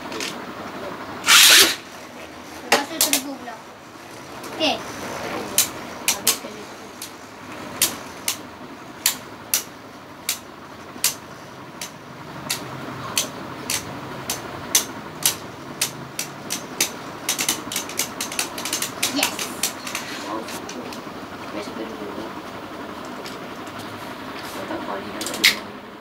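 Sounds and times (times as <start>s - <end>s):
spinning tops clacking together: 11.8s - 20.1s.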